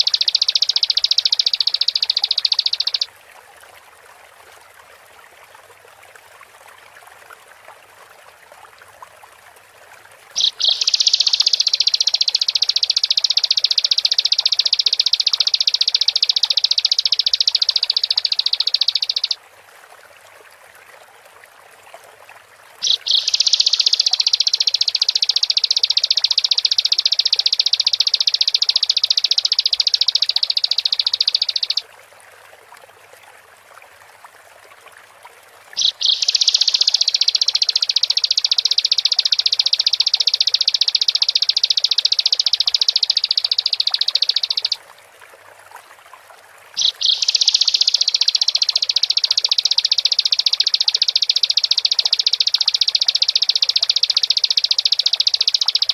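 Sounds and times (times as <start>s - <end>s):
bird clicks: 0.0s - 3.1s, 10.4s - 19.4s, 22.8s - 31.8s, 35.8s - 44.8s, 46.8s - 55.9s
bird singing high trills: 0.0s - 3.1s, 10.4s - 19.4s, 22.8s - 31.8s, 35.8s - 44.8s, 46.8s - 55.9s.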